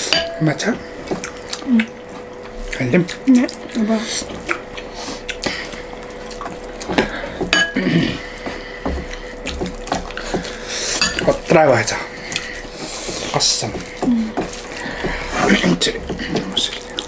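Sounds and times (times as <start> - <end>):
eating sounds: 1.1 - 17.0
hands mixing rice on steel plates: 4.3 - 16.8.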